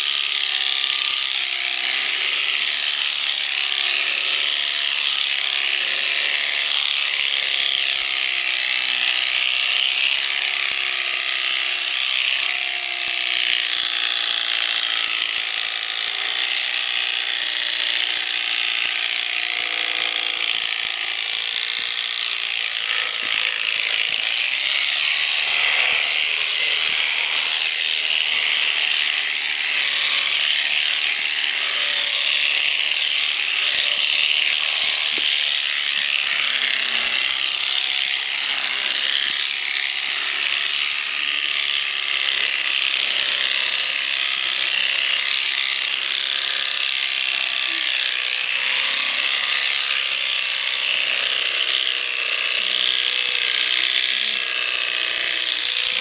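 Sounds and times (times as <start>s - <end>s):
electric shears running: 0.0s - 56.0s
cutter clattering across comb: 20.9s - 42.9s.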